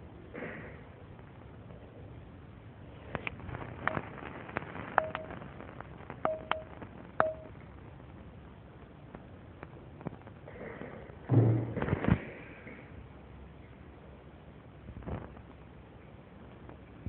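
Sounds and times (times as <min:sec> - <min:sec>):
sharp clicks: 0:03.2 - 0:05.4, 0:06.2 - 0:07.5
brief ringing tone: 0:05.0 - 0:05.3, 0:06.3 - 0:07.5.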